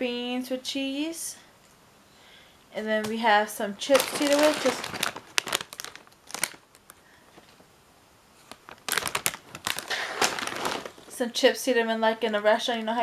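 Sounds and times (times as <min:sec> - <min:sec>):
plastic chip bag crinkling: 0:03.8 - 0:07.6, 0:08.4 - 0:11.2.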